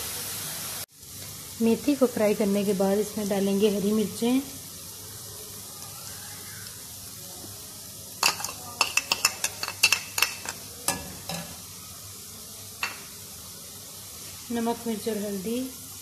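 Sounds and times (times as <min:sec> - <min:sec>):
faint sizzle of frying oil: 0:00.0 - 0:16.0
ladle clinking against pan: 0:08.2 - 0:11.6
metal spoon scraping and tapping: 0:08.2 - 0:11.6.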